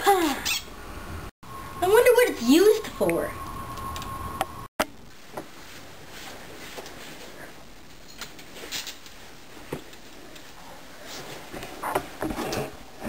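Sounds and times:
clothing rustle: 5.2s - 12.7s.

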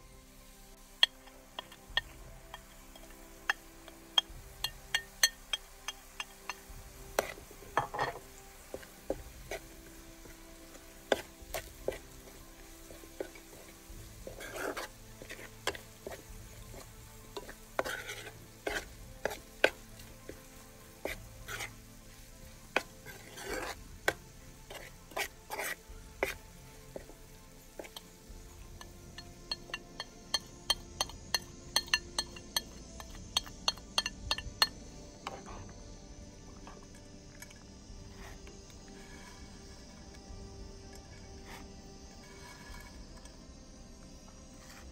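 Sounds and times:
light frying sizzle: 0.0s - 44.9s
metal spoon scraping pan: 1.0s - 35.6s.

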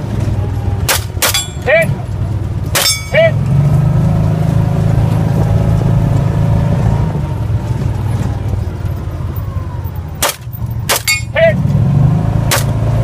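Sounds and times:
vehicle engine running: 0.0s - 13.0s
pistol shot: 10.2s - 11.3s, 12.5s - 12.8s.

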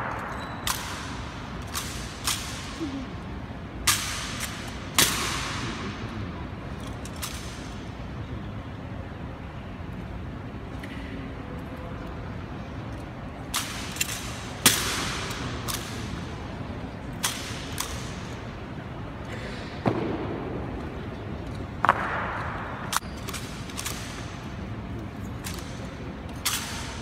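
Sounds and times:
rifles knocked and slapped: 21.4s - 24.6s, 25.3s - 27.0s.

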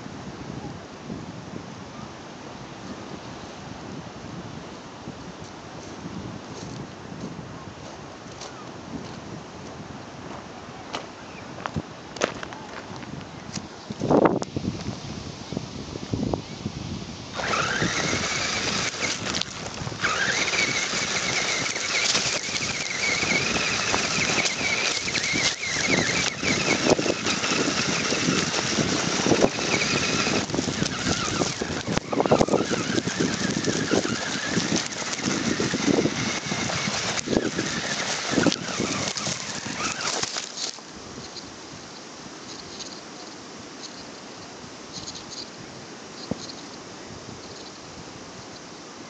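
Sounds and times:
tyres crunching on gravel: 11.0s - 14.2s, 17.4s - 40.9s
electric motor whining: 17.4s - 40.8s.

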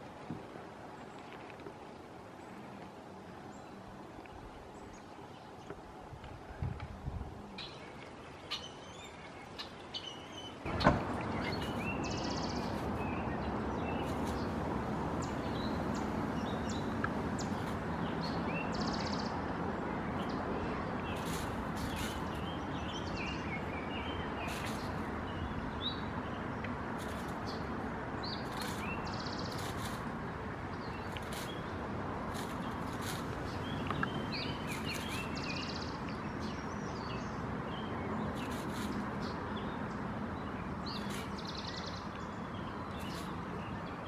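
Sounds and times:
songbirds chirping: 0.0s - 44.0s
steady rushing noise: 10.6s - 36.8s.

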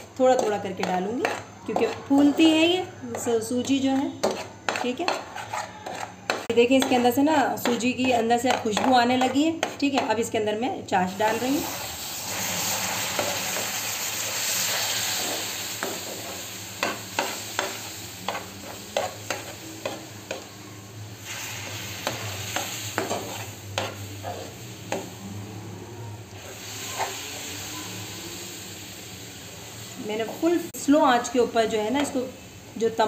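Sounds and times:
metal spoon scraping pan: 0.0s - 10.3s, 11.4s - 20.5s, 21.2s - 25.2s, 26.4s - 27.9s
syrup sizzling in hot pan: 11.1s - 25.2s, 26.3s - 33.0s.

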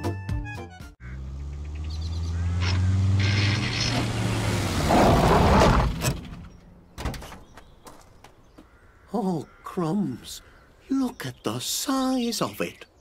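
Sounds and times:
van engine running: 1.0s - 6.6s
tyres crunching over gravel: 3.3s - 8.8s.

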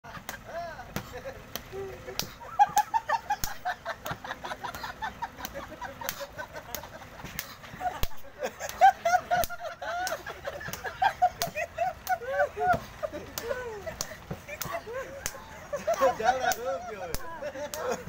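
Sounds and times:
hand slaps on heads: 5.4s - 8.8s.

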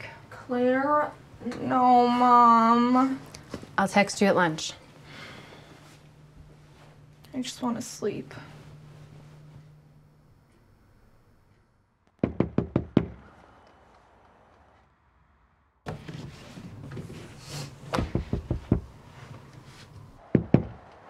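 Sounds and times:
knocking on front door: 12.2s - 13.2s, 18.0s - 18.9s, 20.4s - 20.8s.

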